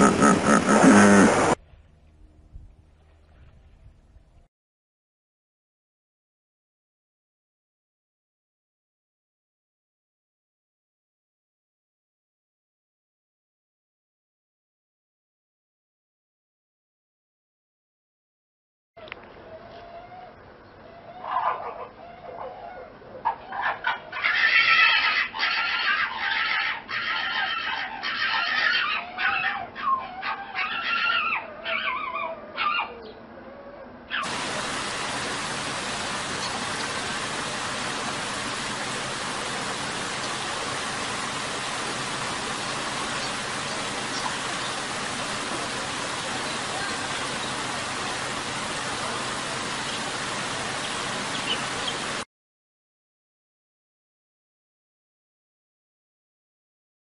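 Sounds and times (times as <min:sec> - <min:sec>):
horse calling: 0:00.0 - 0:01.6
steady rushing hiss: 0:00.0 - 0:01.6, 0:34.2 - 0:52.2.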